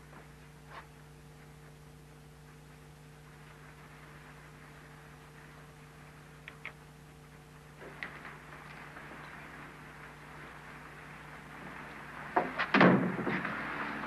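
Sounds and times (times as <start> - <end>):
low electrical hum with hiss: 0.0 - 14.0
small clicks: 6.4 - 6.8.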